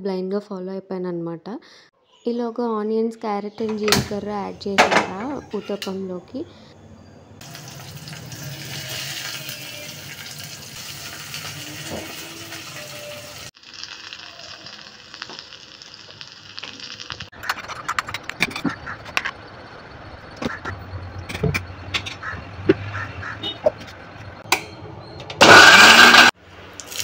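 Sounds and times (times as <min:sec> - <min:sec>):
water pouring: 0:07.4 - 0:17.3, 0:26.8 - 0:27.0
food sizzling in pans: 0:07.4 - 0:17.4, 0:25.5 - 0:27.0.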